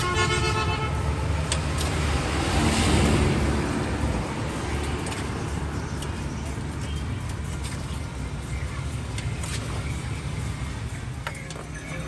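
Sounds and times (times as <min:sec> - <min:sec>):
low traffic rumble: 0:00.0 - 0:12.0
vehicle passing close by: 0:01.6 - 0:05.9.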